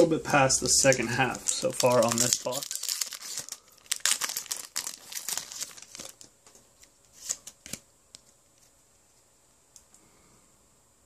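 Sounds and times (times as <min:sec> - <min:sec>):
foil wrapper crinkling: 0:00.8 - 0:07.8.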